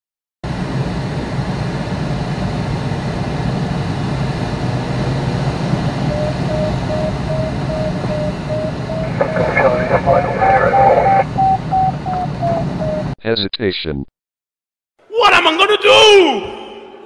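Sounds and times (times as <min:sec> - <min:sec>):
variometer beeping rapidly: 0:06.0 - 0:13.2.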